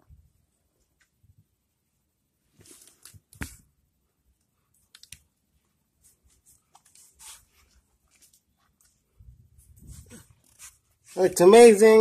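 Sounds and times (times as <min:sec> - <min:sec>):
handling rustles: 0:02.5 - 0:03.7, 0:05.6 - 0:11.7.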